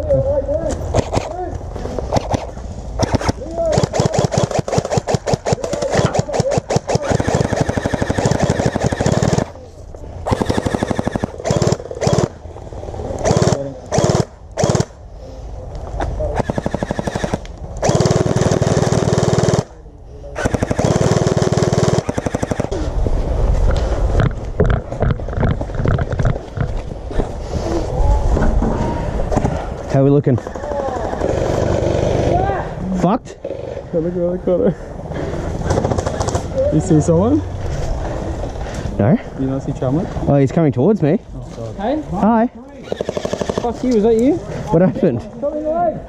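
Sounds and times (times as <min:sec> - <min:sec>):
gel blaster firing bursts: 0:03.0 - 0:09.5, 0:10.2 - 0:12.4, 0:13.2 - 0:15.0, 0:16.4 - 0:19.7, 0:20.4 - 0:22.7.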